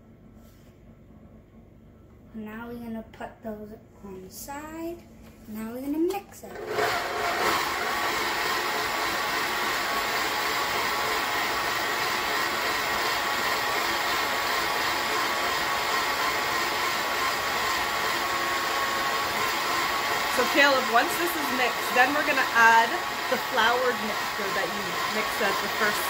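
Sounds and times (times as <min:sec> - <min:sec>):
stand mixer motor whining: 0:06.5 - 0:26.0.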